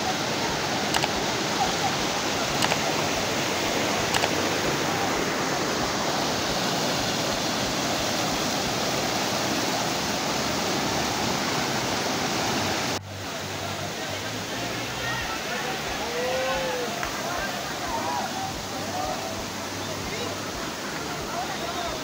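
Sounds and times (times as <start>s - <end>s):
waterfall roaring: 0.0s - 22.0s
faint clicks: 0.9s - 1.2s, 2.6s - 3.0s, 4.1s - 4.5s.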